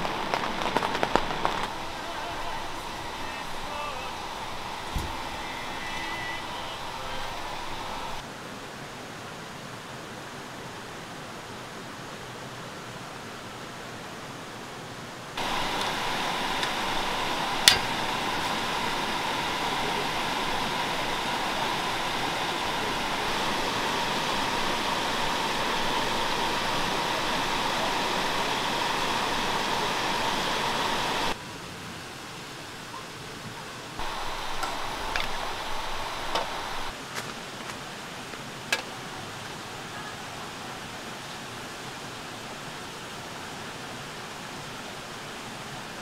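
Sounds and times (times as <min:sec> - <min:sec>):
rushing hiss with whistle tone: 0:00.0 - 0:08.3, 0:15.4 - 0:31.4, 0:34.0 - 0:37.0.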